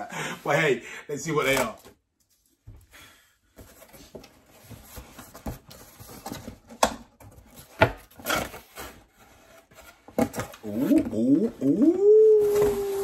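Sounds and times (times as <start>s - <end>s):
cardboard flaps scraping and rustling: 3.6s - 11.6s, 12.2s - 13.0s.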